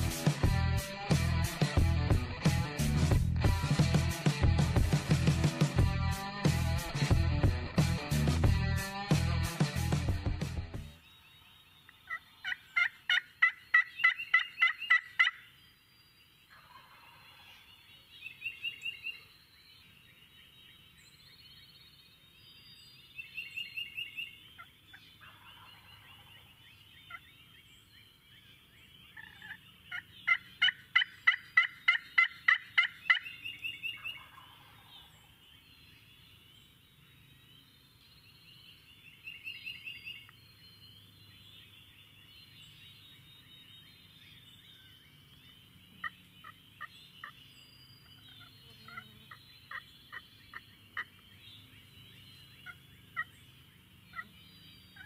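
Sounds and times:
turkey calls: 11.4 - 15.5, 16.5 - 19.3, 23.3 - 27.6, 28.2 - 35.4, 44.7 - 47.4, 48.0 - 55.0.

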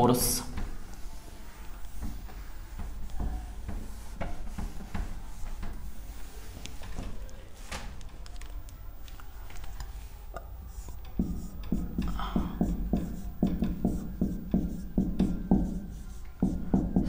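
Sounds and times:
pen scratching writing strokes: 0.9 - 7.0, 10.7 - 17.0.

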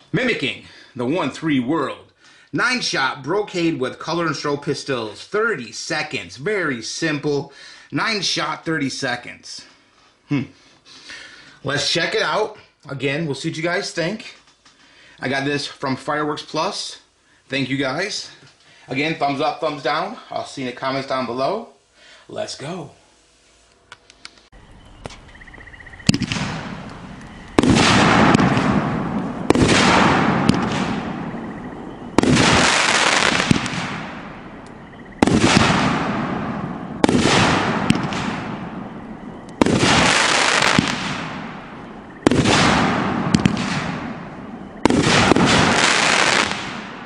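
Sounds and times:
firework bangs: 26.0 - 47.0
firework crackle: 26.1 - 47.0.

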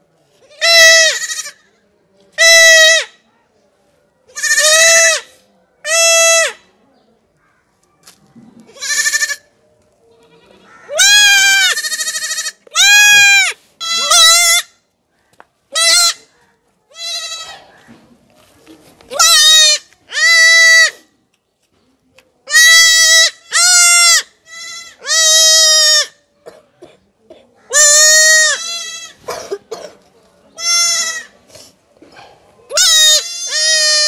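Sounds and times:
goat kid bleating: 0.4 - 1.6, 4.3 - 5.3, 8.6 - 9.6, 10.2 - 14.7, 15.7 - 16.3, 16.9 - 17.7, 19.1 - 20.9, 22.5 - 26.2, 27.7 - 29.3, 30.6 - 31.4, 32.7 - 34.0.

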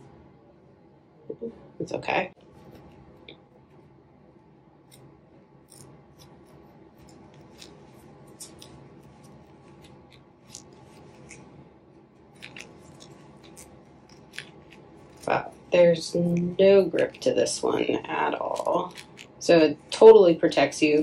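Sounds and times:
low steady hum: 0.0 - 21.0
knitting needles clicking: 12.4 - 15.6.

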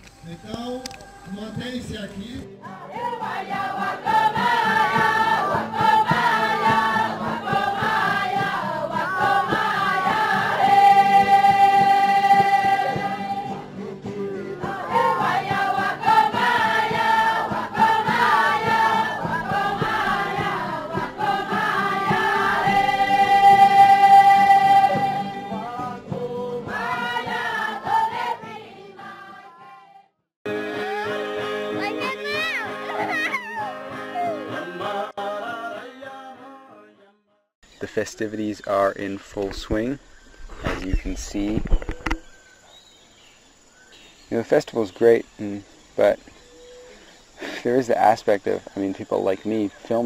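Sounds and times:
group singing a chant: 2.6 - 33.1, 33.7 - 37.2.

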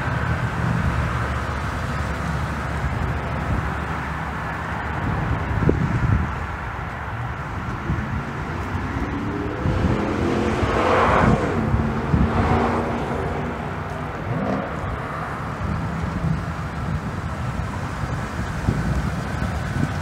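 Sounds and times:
truck engine revving: 8.2 - 16.0.

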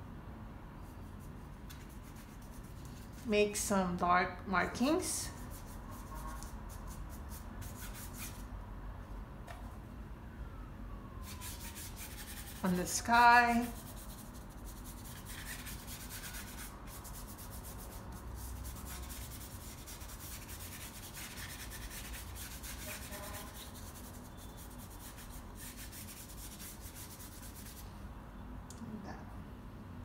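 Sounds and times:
paintbrush rubbing on canvas paper: 0.8 - 3.3, 5.2 - 8.5, 11.2 - 27.8.

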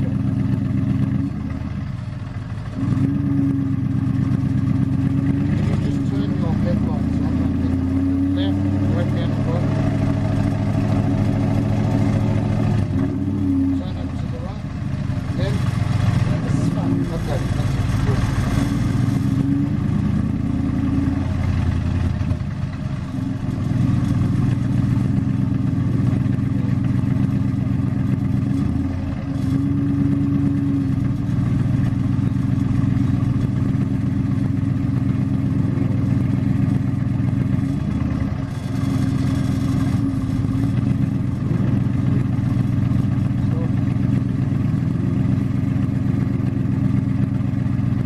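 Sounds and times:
car engine at low revs: 0.0 - 48.0.

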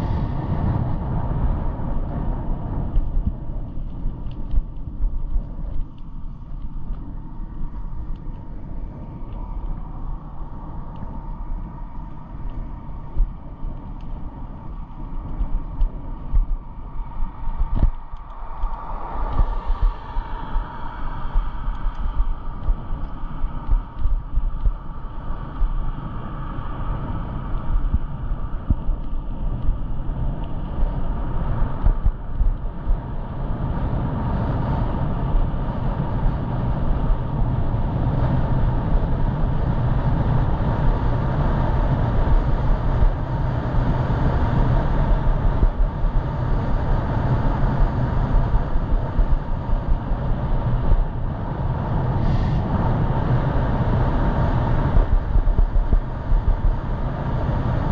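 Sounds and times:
steady low rumble: 0.0 - 57.9
wind and road noise: 0.0 - 57.9.

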